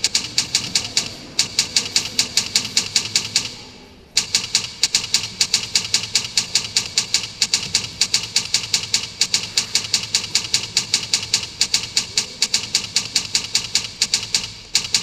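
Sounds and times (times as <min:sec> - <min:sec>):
typewriter keys clacking: 0:00.0 - 0:03.6, 0:04.2 - 0:15.0.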